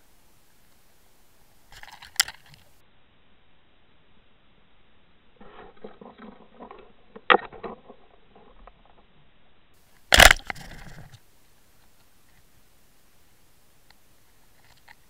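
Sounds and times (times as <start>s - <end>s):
faint underwater crackling: 0.0s - 2.8s, 9.8s - 15.0s
sharp click: 10.1s - 11.1s.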